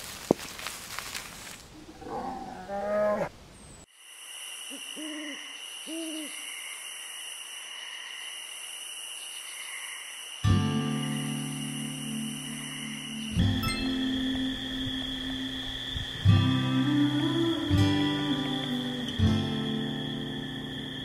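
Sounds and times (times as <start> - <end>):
night insects chirring: 0.0 - 21.0
owl hooting: 4.7 - 6.8.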